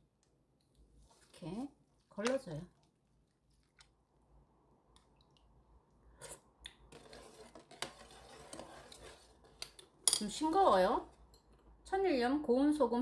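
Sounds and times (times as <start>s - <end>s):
liquid swishing: 5.0s - 9.6s.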